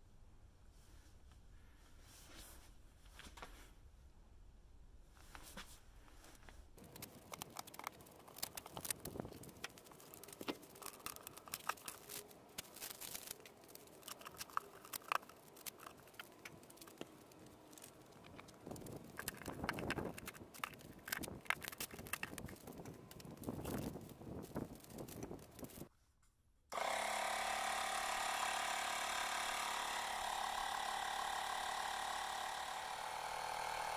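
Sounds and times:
cardboard tearing: 6.8 - 25.8
packing crinkling: 6.8 - 25.9.

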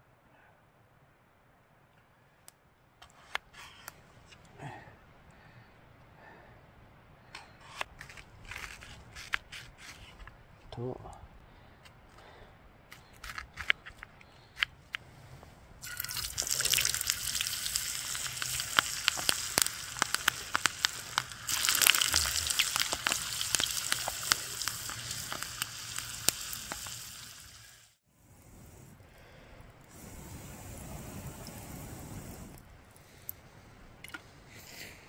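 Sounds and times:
crackling and sizzling with pops: 12.9 - 33.5.

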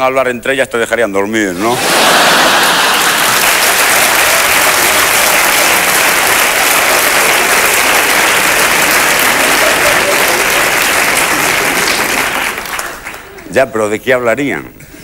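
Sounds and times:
audience applauding: 1.7 - 13.5.

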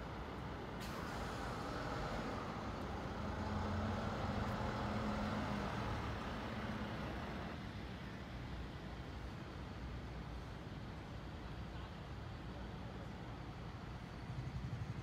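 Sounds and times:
electric train rumble: 0.0 - 11.0.

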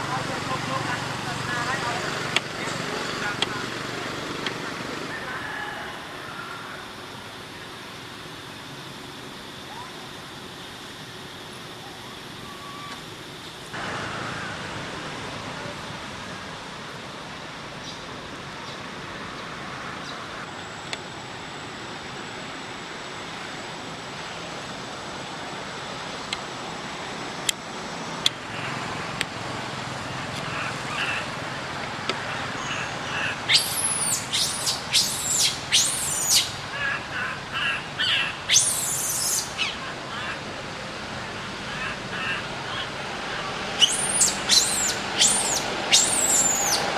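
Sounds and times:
outdoor ambience: 0.0 - 46.9
soft bird chirps: 32.2 - 40.4, 43.8 - 46.9
bird calling in high sweeping notes: 32.3 - 40.4, 41.7 - 46.9.

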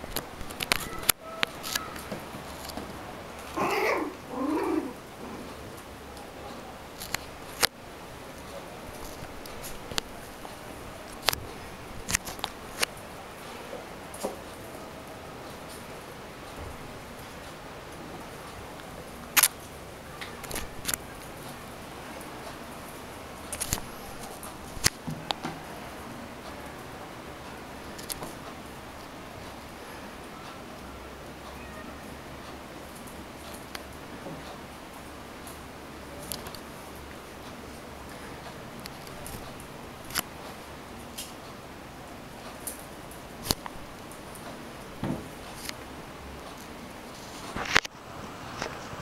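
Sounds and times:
puppy whining: 0.7 - 2.1, 3.5 - 5.6.

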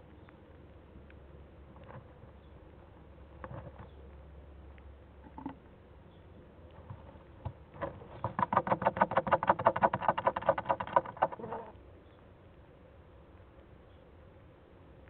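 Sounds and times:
chick scratching in wood shavings: 6.7 - 11.8.

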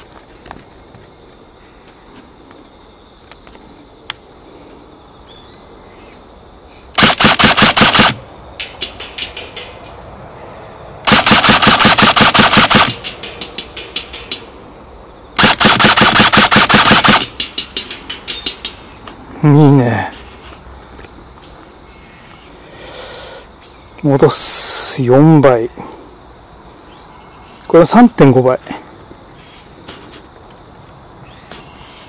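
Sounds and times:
airsoft gun automatic bursts: 7.0 - 8.2, 11.0 - 13.2, 15.4 - 17.5.

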